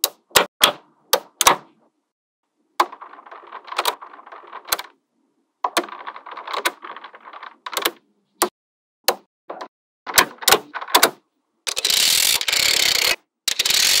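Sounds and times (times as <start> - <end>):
magnetic balls clattering: 2.8 - 5.0.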